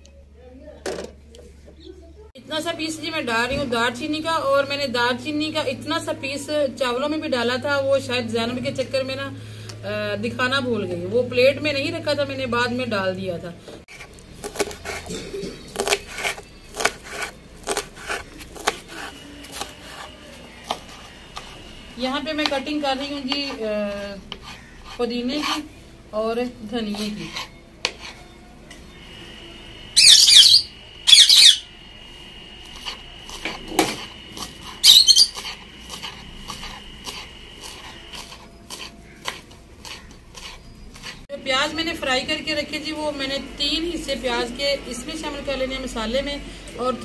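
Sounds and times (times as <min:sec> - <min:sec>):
knife chopping herbs on wooden board: 0:13.9 - 0:15.1, 0:15.8 - 0:21.6, 0:22.3 - 0:25.6, 0:32.7 - 0:41.2
knife chopping on wooden board: 0:15.8 - 0:21.5
shrill squawking: 0:30.0 - 0:31.7, 0:34.8 - 0:35.4.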